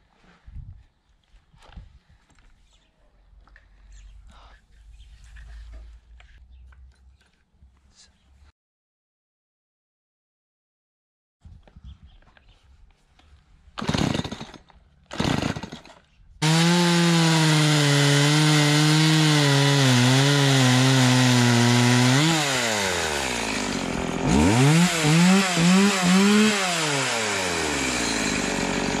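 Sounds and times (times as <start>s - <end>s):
chainsaw cutting through log: 13.8s - 29.0s
chainsaw idling and revving: 13.8s - 29.0s
chainsaw starter cord pulls: 13.8s - 29.0s.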